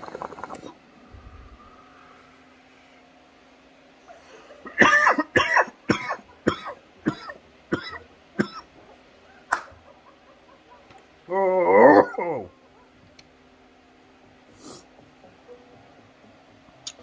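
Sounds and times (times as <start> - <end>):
man coughing hard: 4.6 - 8.7, 11.7 - 12.5.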